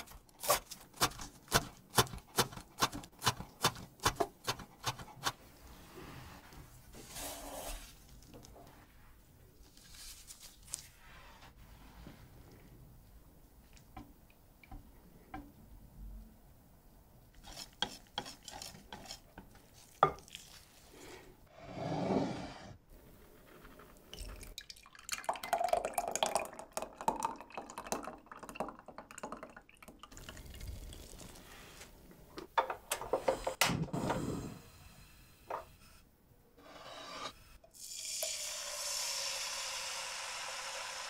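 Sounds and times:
whisk stirring batter in glass bowl: 0:17.4 - 0:19.9
batter pouring and dripping: 0:19.5 - 0:20.9.

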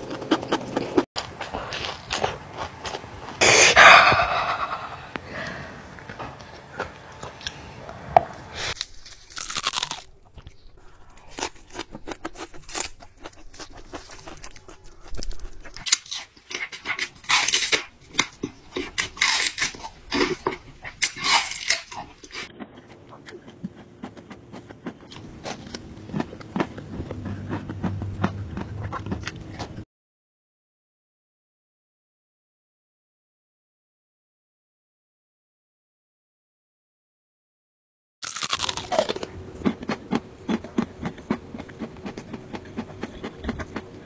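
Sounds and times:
crunching and chewing lettuce: 0:00.0 - 0:05.0, 0:08.6 - 0:29.8, 0:38.2 - 0:44.0.

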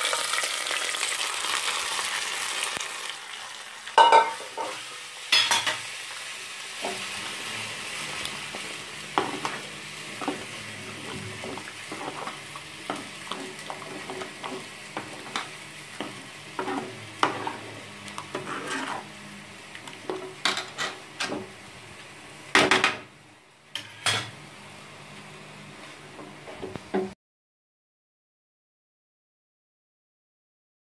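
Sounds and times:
curry sizzling: 0:00.0 - 0:27.1
spoon scraping metal pot: 0:16.6 - 0:19.1.

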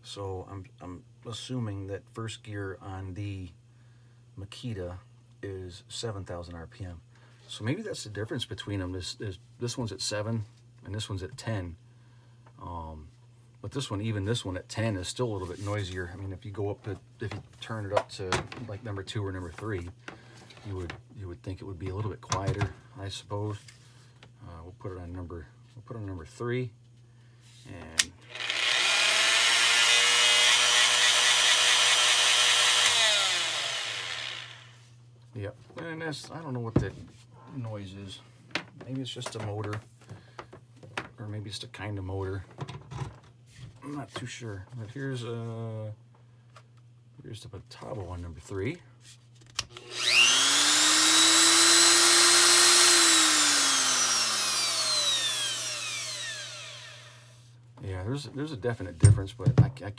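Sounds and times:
die grinder high-pitched whine: 0:28.2 - 0:34.8, 0:49.8 - 0:57.4.

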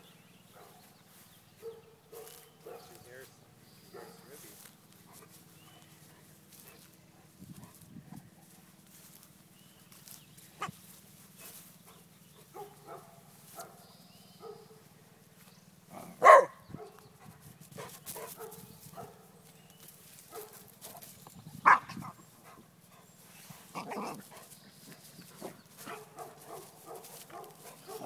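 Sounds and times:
dog barking: 0:00.5 - 0:00.9, 0:01.6 - 0:03.0, 0:03.9 - 0:04.4, 0:12.5 - 0:13.8, 0:14.4 - 0:14.8, 0:16.1 - 0:17.0, 0:18.2 - 0:19.4, 0:20.3 - 0:20.7, 0:21.6 - 0:22.1, 0:25.4 - 0:28.0
dogs playing: 0:17.1 - 0:28.0.

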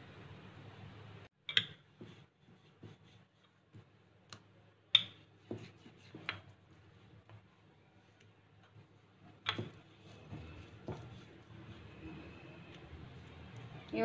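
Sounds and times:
rolling pin tapping on counter: 0:09.4 - 0:11.2.

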